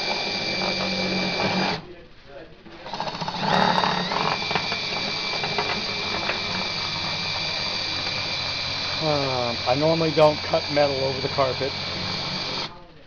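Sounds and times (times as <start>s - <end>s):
electric router cutting metal: 0.0s - 1.8s, 2.9s - 12.7s.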